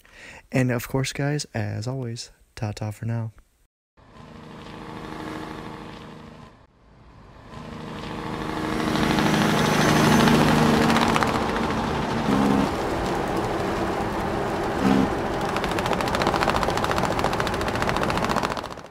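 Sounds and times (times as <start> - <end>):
tractor engine running: 4.1 - 6.7, 7.4 - 18.9.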